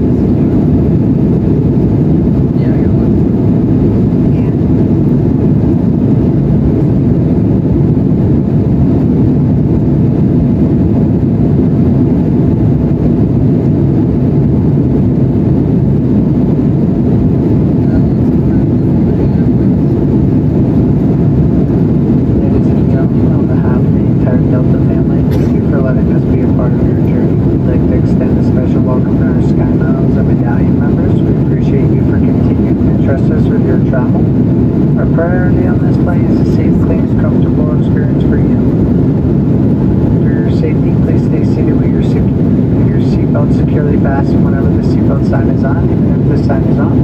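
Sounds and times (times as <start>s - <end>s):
airplane cabin noise: 0.0s - 47.0s.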